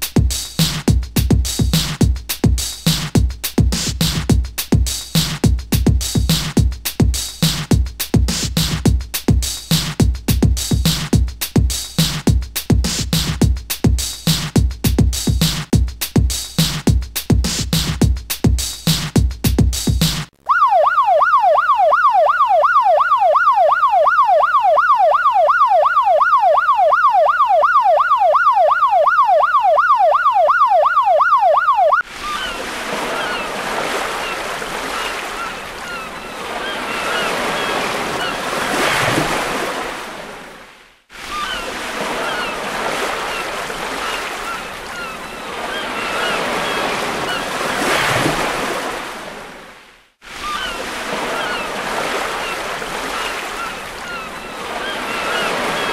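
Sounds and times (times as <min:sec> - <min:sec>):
siren yelping: 0:20.4 - 0:39.1, 0:41.2 - 0:47.8, 0:50.4 - 0:55.9
surf waves washing in: 0:32.0 - 0:55.9.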